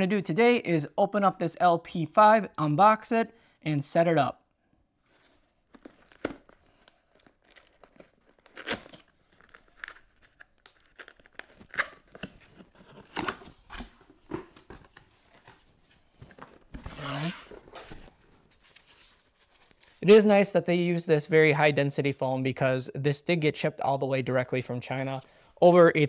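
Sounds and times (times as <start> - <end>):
cardboard tearing and scraping: 16.8 - 19.6.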